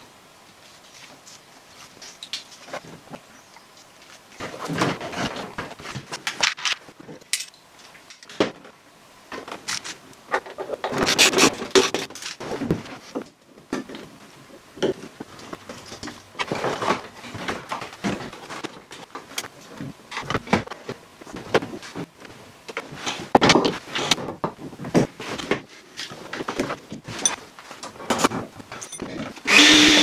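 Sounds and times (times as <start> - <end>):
plastic trim and wiring scraping: 9.3 - 13.2.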